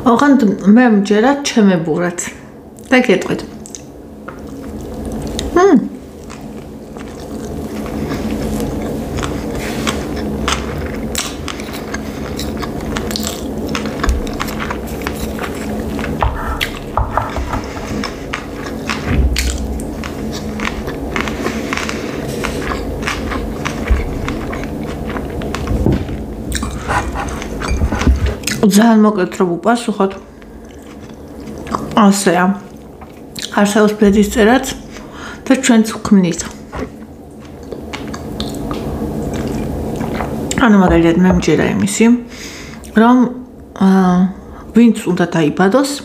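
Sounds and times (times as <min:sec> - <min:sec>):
close chewing with wet mouth sounds: 0:02.8 - 0:17.0, 0:17.8 - 0:27.8, 0:30.0 - 0:34.0, 0:36.4 - 0:40.7.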